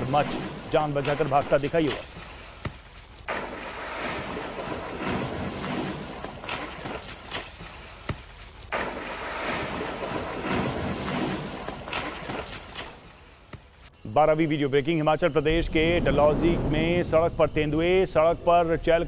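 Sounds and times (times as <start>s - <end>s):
rushing wind-like noise: 15.2s - 19.0s.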